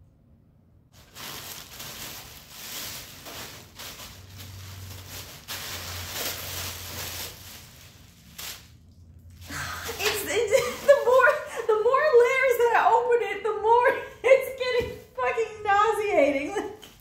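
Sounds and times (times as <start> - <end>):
plastic packaging crinkling: 1.0 - 12.4.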